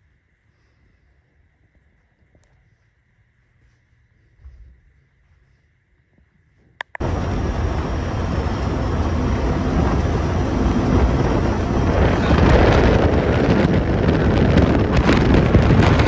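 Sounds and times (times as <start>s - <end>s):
wind noise: 6.0s - 16.0s
off-road vehicle engine: 6.9s - 16.0s.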